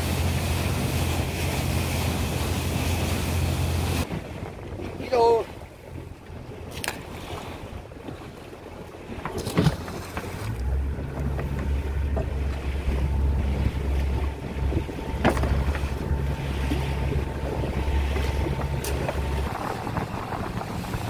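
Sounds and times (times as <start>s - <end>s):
boat engine rumble: 0.0s - 21.0s
water noise: 0.0s - 21.0s
wind buffeting microphone: 0.0s - 21.0s.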